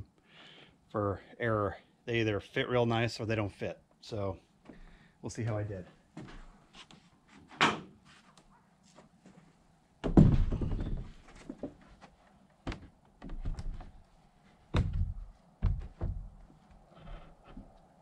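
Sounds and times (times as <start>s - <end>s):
wooden door thunks and knocks: 10.0s - 11.2s, 12.7s - 14.0s, 14.7s - 16.4s.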